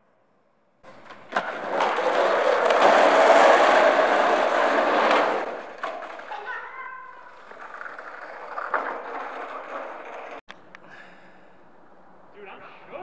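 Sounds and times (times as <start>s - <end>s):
skateboard clack: 0.8s - 10.4s
skateboard wheels rolling on concrete: 0.8s - 10.4s.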